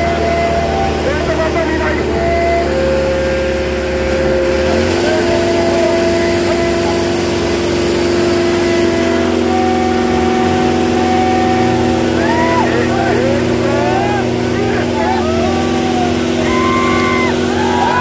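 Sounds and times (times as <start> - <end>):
crowd voices: 0.0 - 18.0
tractor diesel engines running: 0.0 - 18.0.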